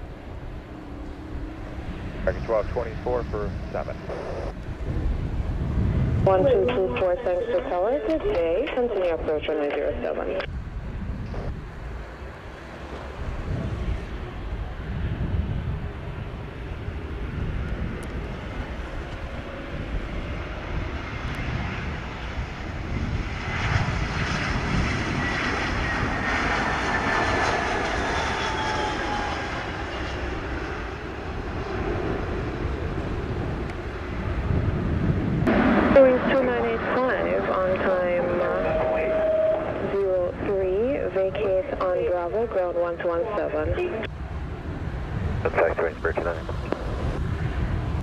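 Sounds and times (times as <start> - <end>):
jet engines rumbling: 0.0 - 48.0
jet landing rush: 0.0 - 48.0
engine whine falling in pitch: 20.3 - 44.8.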